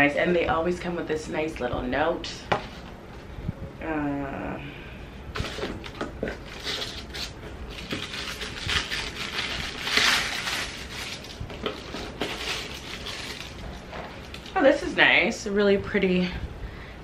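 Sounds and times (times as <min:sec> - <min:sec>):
packaging rustling: 0:05.4 - 0:14.6.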